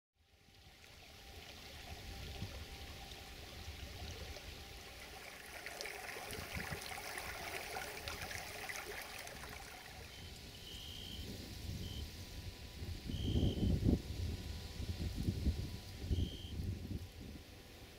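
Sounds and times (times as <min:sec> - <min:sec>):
stream trickling over stones: 0:00.2 - 0:11.2.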